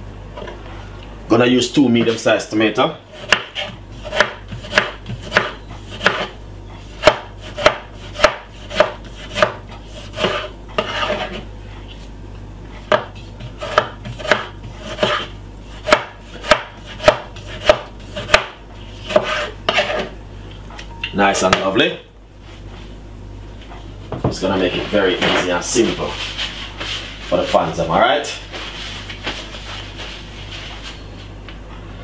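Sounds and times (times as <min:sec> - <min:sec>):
knife chopping on cutting board: 0:03.1 - 0:11.4, 0:12.8 - 0:20.1.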